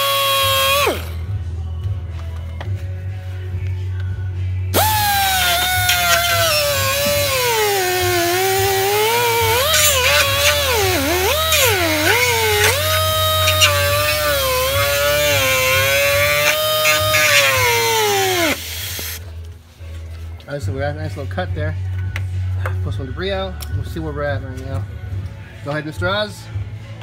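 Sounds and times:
rotary tool cutting: 0:00.0 - 0:01.1, 0:04.8 - 0:19.2.

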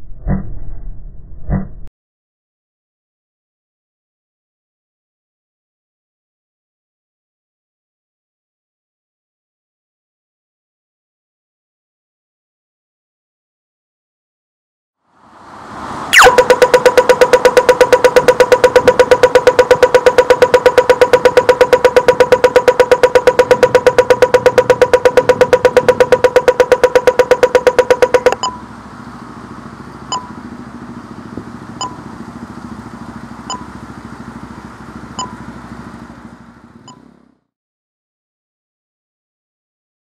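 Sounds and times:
low traffic noise: 0:15.2 - 0:37.4
crossing signal ticking: 0:16.1 - 0:37.2.

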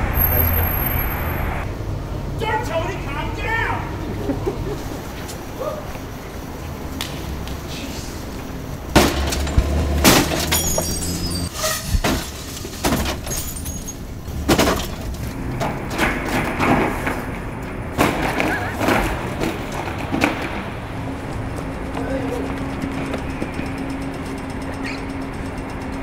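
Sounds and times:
clatter of plastic and metal: 0:08.9 - 0:17.3
glass breaking and tinkling: 0:09.1 - 0:11.5, 0:12.9 - 0:14.0.

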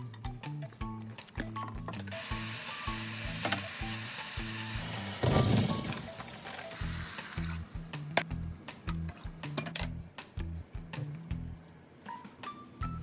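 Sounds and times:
beef sizzling in a wok: 0:02.1 - 0:05.2, 0:06.6 - 0:07.6.

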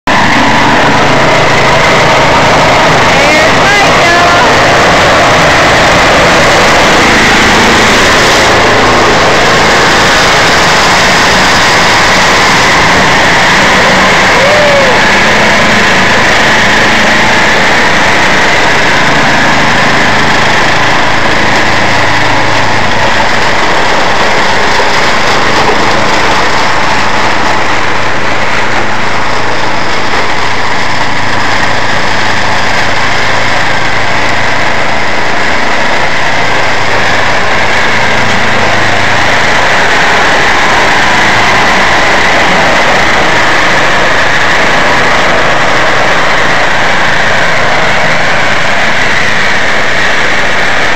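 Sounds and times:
snowblower engine running: 0:00.0 - 0:50.9.

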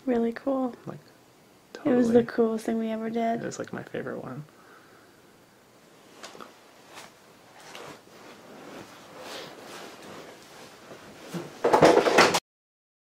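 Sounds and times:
clothing rustling: 0:06.0 - 0:11.7
loud rustle against microphone: 0:06.1 - 0:11.7.

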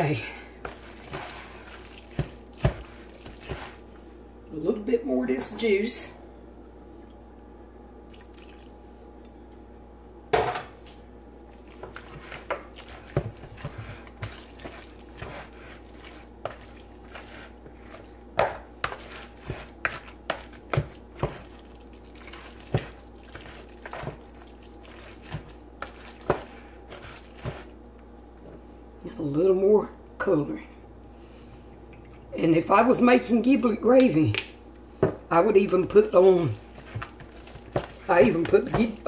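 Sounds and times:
plastic spoon stirring in a bowl: 0:00.6 - 0:03.9, 0:11.6 - 0:27.8, 0:35.5 - 0:39.0.

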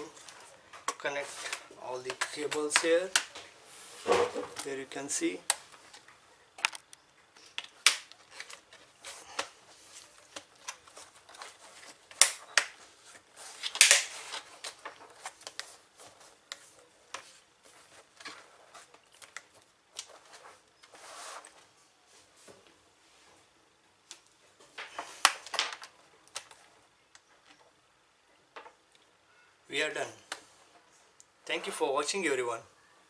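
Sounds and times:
plastic cover clicks and snaps: 0:02.0 - 0:03.4, 0:05.4 - 0:08.7, 0:12.1 - 0:12.8, 0:13.6 - 0:15.7.

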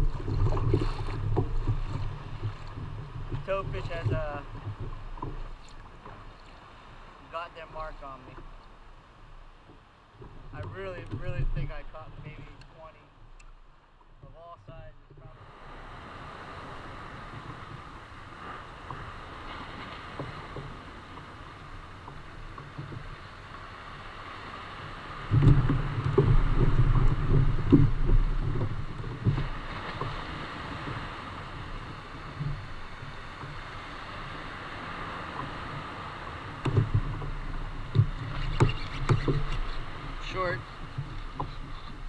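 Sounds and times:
low rumbling with knocks: 0:00.0 - 0:06.3, 0:09.6 - 0:12.6, 0:25.2 - 0:30.2, 0:36.6 - 0:42.0
water noise around kayak: 0:00.0 - 0:42.0
wind: 0:00.0 - 0:42.0.

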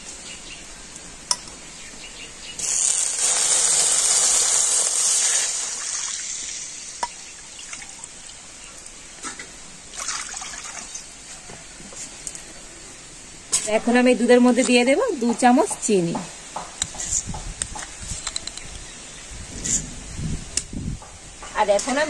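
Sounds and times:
milk pouring into hot oil: 0:02.6 - 0:08.4.

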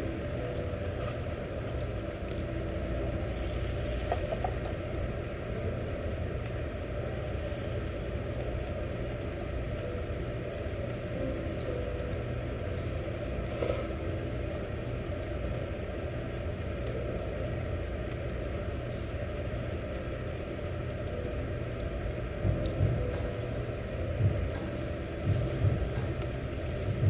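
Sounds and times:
grill extraction rumble: 0:00.0 - 0:27.0.

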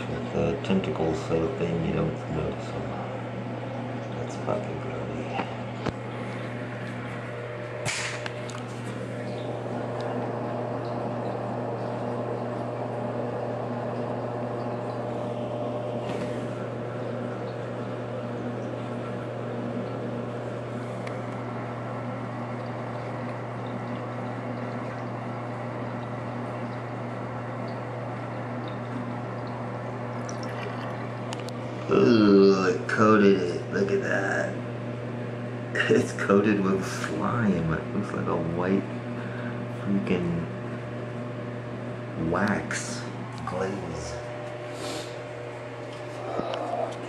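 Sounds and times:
water running into a sink: 0:28.2 - 0:31.5.

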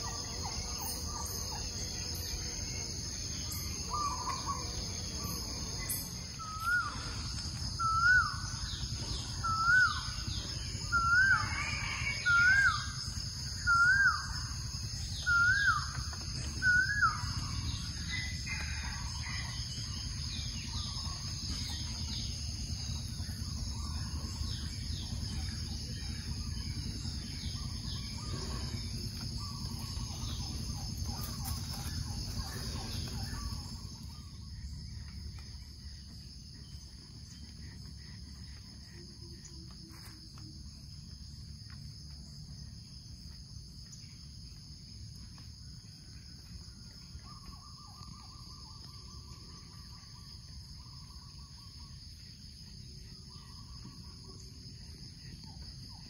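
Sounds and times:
birds chirping: 0:00.0 - 0:39.8
insects droning: 0:00.0 - 0:56.0
low background rumble: 0:00.0 - 0:56.0.

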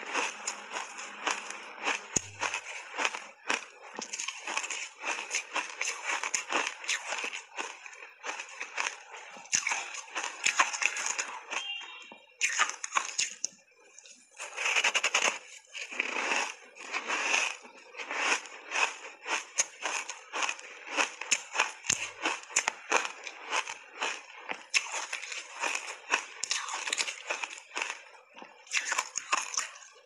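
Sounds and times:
ice crunching being chewed: 0:00.0 - 0:30.0.

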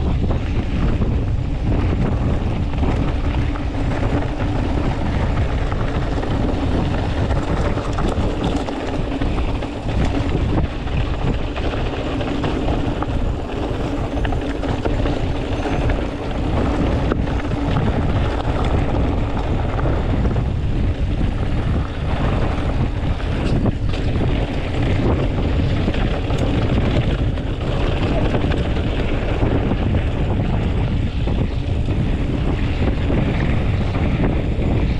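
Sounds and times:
bike clicks and rattles: 0:00.0 - 0:34.9
bike tyres on dirt trail: 0:00.0 - 0:34.9
wind over microphone: 0:00.0 - 0:34.9.

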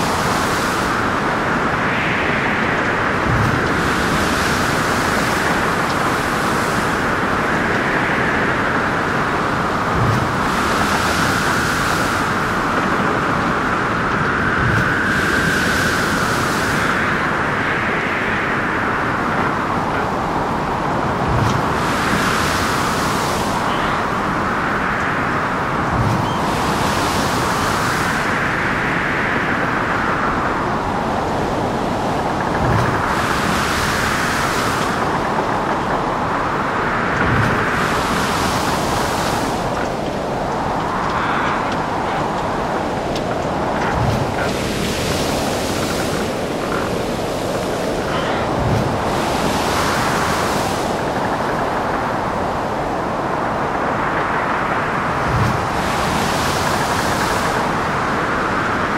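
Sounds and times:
whistling wind: 0:00.0 - 0:58.9
waves breaking with spray: 0:02.8 - 0:17.6, 0:18.8 - 0:28.9, 0:30.5 - 0:58.9.

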